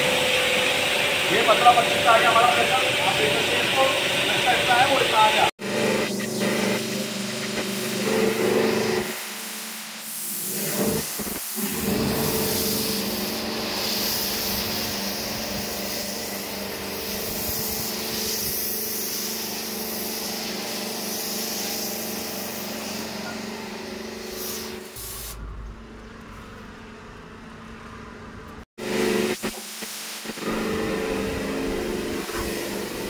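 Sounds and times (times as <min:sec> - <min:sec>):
washing machine humming: 0:00.0 - 0:09.1, 0:22.0 - 0:33.0
foam sprayer hissing: 0:00.0 - 0:25.5, 0:28.8 - 0:33.0
low rumble: 0:25.0 - 0:28.0.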